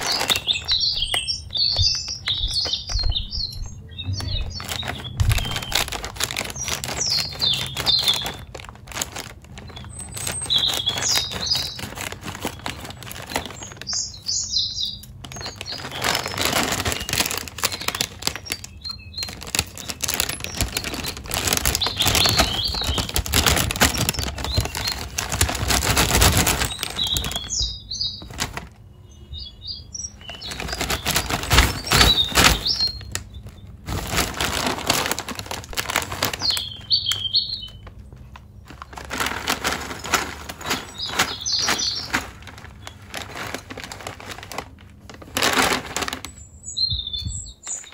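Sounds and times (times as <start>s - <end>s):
scissors cutting plastic: 0.0s - 2.9s, 3.5s - 14.1s, 15.0s - 28.7s
plastic pouch crinkling: 0.0s - 28.8s, 30.2s - 46.5s.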